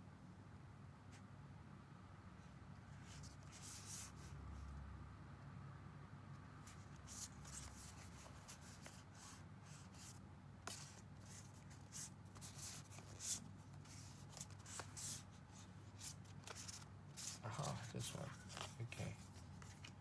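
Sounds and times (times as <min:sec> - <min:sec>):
cards brushing and sliding: 0:06.6 - 0:20.0.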